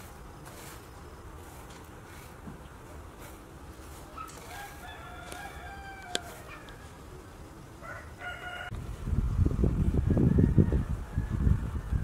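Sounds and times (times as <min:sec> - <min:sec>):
rooster crowing: 0:04.4 - 0:07.0, 0:07.8 - 0:08.8, 0:10.0 - 0:12.0.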